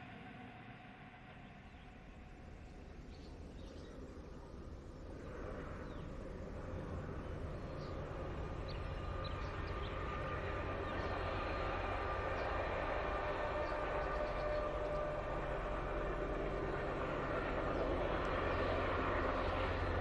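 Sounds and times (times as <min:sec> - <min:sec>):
distant locomotive rumble: 0:00.0 - 0:20.0.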